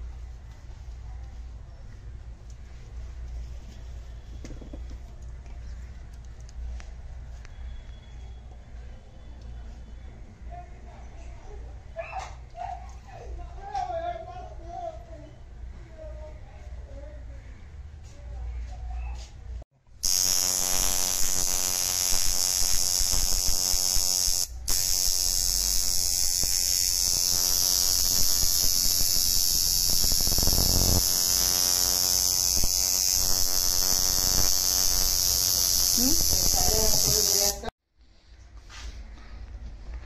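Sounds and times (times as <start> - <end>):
tattoo machine buzzing: 20.0 - 37.7.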